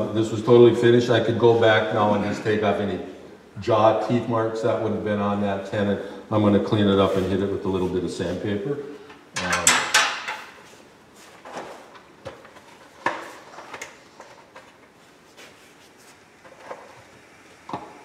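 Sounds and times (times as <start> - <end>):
tool handling clatter: 9.4 - 10.8.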